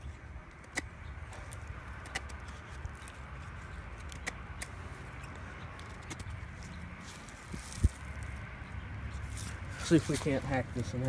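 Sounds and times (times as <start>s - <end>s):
wood snapping clicks: 0.5s - 2.5s, 3.9s - 4.8s.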